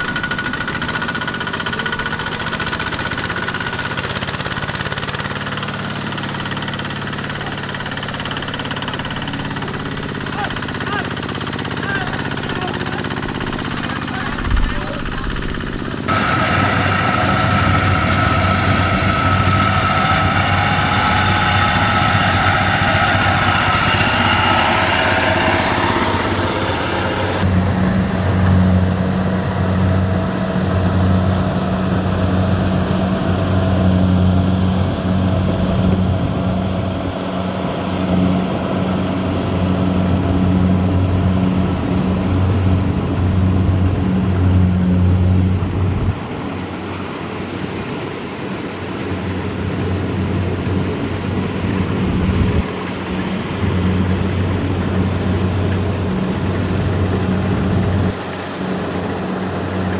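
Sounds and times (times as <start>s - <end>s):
engine whine: 0.0s - 59.9s
tractor engine running: 0.0s - 59.9s.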